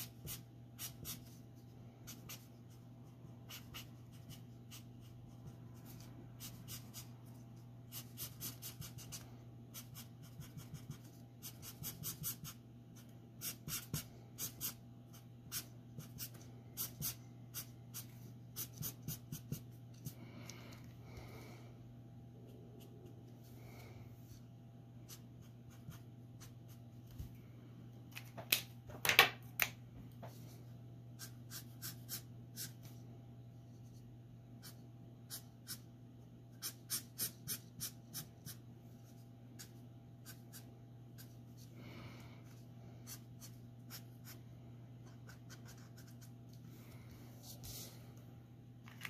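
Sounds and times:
low steady hum: 0:00.0 - 0:49.0.

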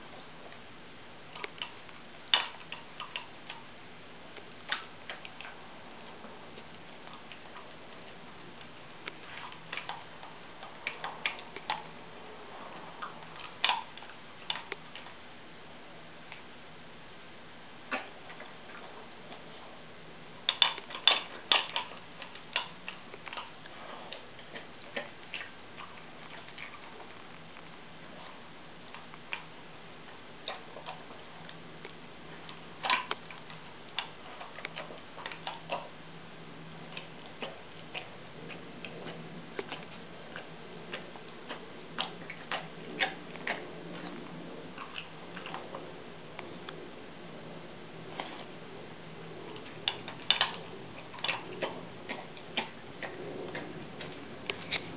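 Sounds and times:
steady low hum: 0:00.0 - 0:54.9
dog crunching kibble in metal bowl: 0:20.4 - 0:29.5, 0:49.4 - 0:54.9.

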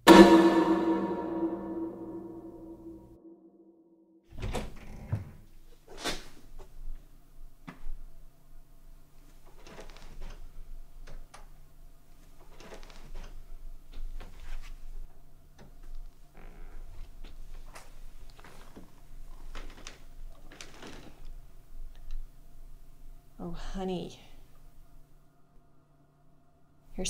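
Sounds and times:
music: 0:00.0 - 0:03.0.

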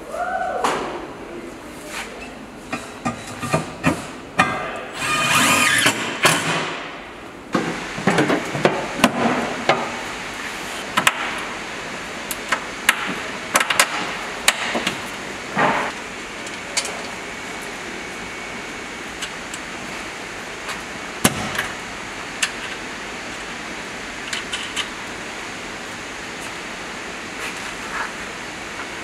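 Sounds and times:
cordless power tool whirring: 0:05.0 - 0:05.9.

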